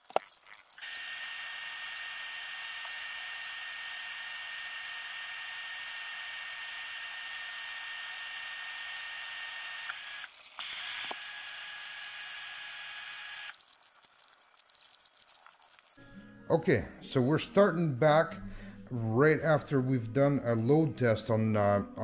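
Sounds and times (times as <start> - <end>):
battery load tester whine: 0.7 - 13.6.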